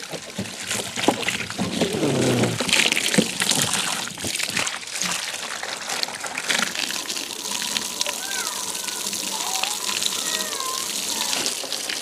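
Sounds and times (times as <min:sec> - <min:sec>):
hose water splashing on plastic: 0:00.0 - 0:12.0
hand rubbing bodywork: 0:01.6 - 0:02.7.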